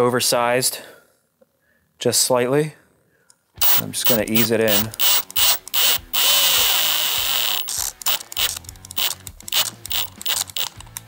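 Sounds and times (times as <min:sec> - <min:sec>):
power drill whining: 0:03.6 - 0:10.8.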